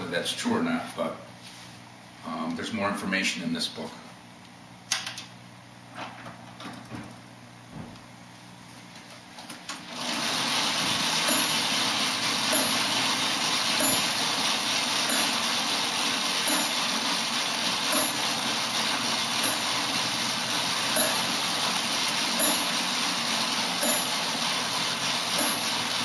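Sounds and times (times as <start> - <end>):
electric motor whirring: 9.8 - 26.0.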